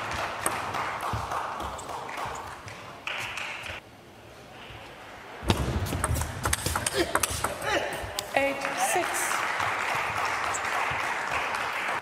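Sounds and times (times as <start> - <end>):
crowd applause: 8.6 - 12.0.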